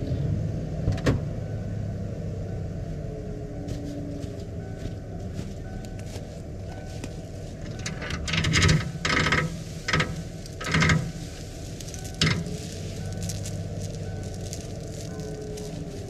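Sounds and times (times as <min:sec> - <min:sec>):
chain rattling: 0:07.6 - 0:16.0.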